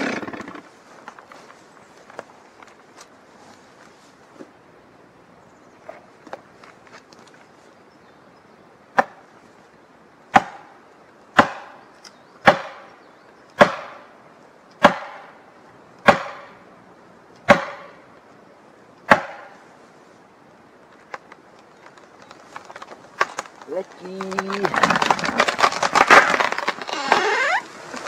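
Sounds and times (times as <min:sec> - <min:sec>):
axe hammering a wedge: 0:10.4 - 0:10.6, 0:11.4 - 0:11.7, 0:12.4 - 0:12.8, 0:13.6 - 0:14.0, 0:14.8 - 0:15.2, 0:16.0 - 0:16.5, 0:17.5 - 0:17.9, 0:19.1 - 0:19.5.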